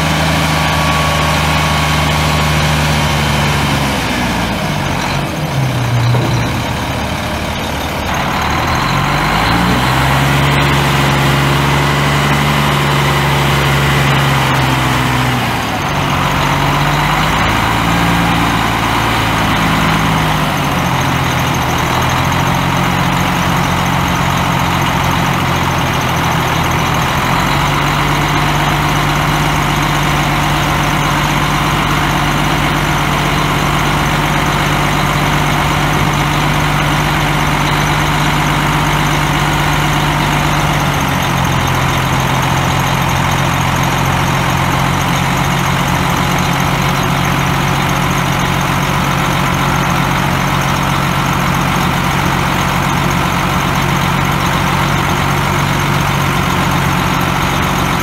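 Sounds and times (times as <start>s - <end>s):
diesel truck engine idling: 0.0s - 58.0s.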